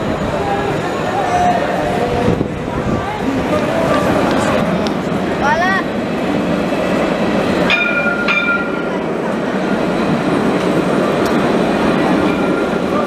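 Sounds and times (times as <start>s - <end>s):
tram wheels rumbling on rail: 0.0s - 13.0s
ringing warning bell: 7.7s - 9.0s.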